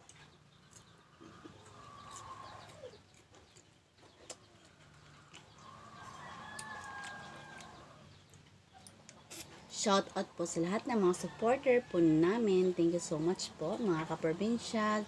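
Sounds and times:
crunchy chewing: 0.0s - 9.7s
chicken calling: 1.2s - 3.1s.

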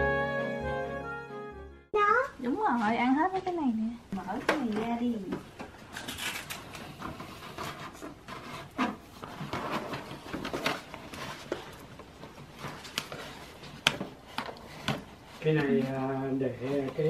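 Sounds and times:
cardboard box rustling: 6.9s - 17.0s.

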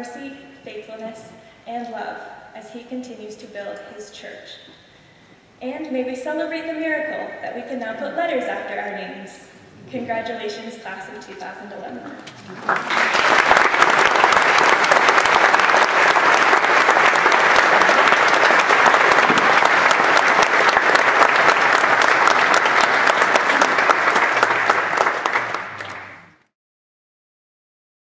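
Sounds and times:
audience applauding: 12.2s - 26.5s.

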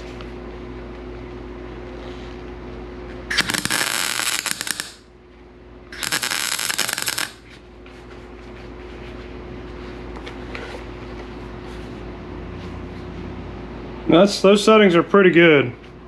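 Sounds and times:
welder steady hum: 0.0s - 13.1s
welding arc crackling sizzle: 3.3s - 5.1s, 5.9s - 7.5s.

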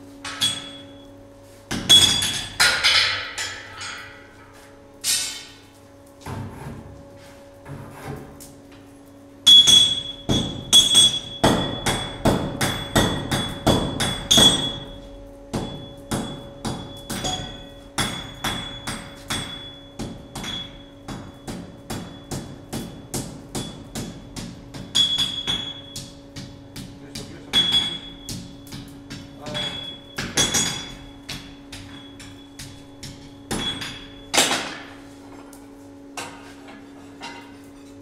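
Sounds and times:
hammer striking anvil: 0.2s - 0.9s, 1.7s - 4.2s, 9.5s - 34.9s.

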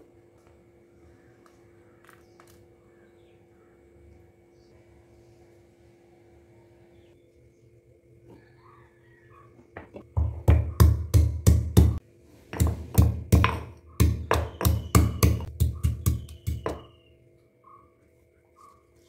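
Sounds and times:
stone pestle pounding in mortar: 10.1s - 12.0s, 12.6s - 16.9s.

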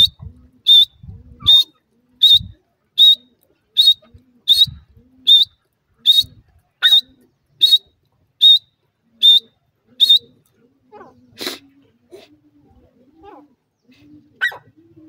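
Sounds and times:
francolin calling: 0.0s - 10.3s.

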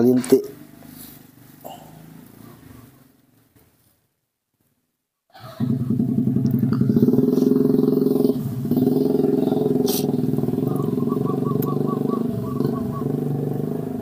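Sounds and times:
motorcycle engine running: 5.5s - 14.0s.

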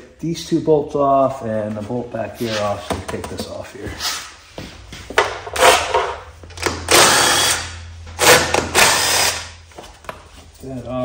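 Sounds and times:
cordless power driver spinning: 6.6s - 9.5s.

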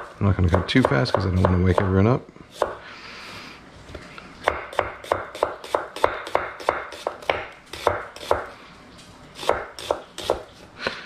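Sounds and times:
knife striking a wooden cutting board: 4.4s - 8.5s.

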